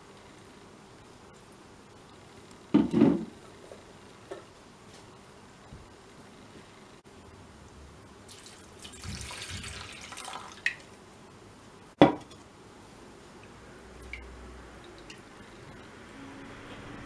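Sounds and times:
water splashing into a metal pot: 8.3 - 10.9.

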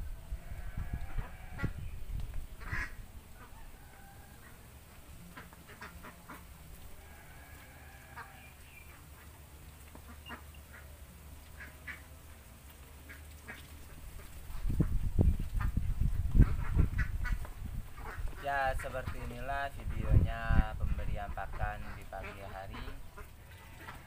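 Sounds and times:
ducks quacking: 2.6 - 3.6, 5.3 - 12.1, 13.0 - 24.0.

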